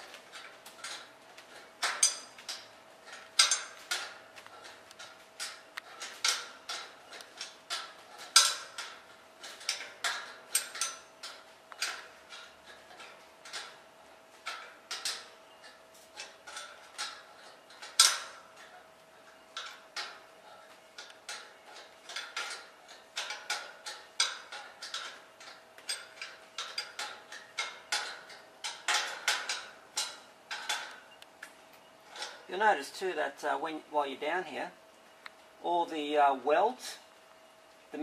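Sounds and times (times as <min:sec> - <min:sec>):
metal clank: 0:00.0 - 0:13.8.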